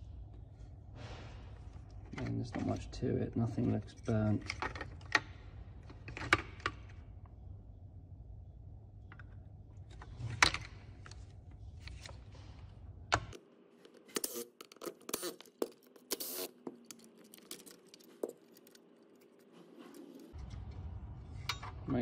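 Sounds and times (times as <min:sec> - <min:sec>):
plastic and metal parts clicking: 0:14.0 - 0:19.5.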